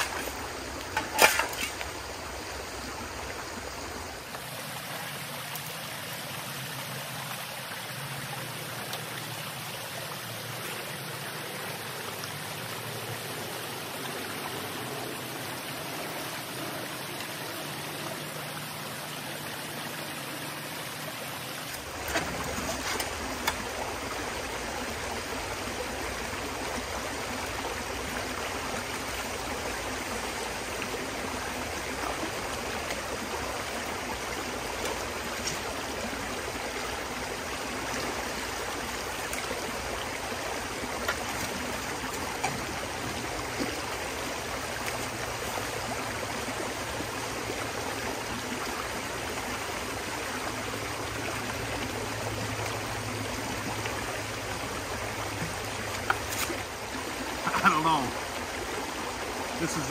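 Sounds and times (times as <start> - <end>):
shovel digging gravel: 0.0 - 1.9
water rushing over rocks: 0.0 - 59.9.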